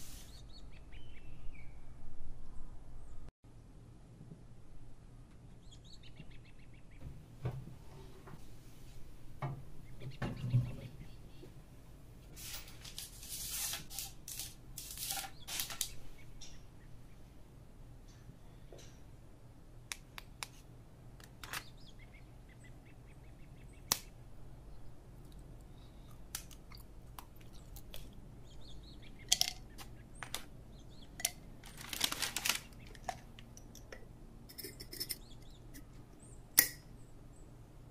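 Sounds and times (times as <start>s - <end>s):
crackle of tuiles: 31.2s - 33.5s.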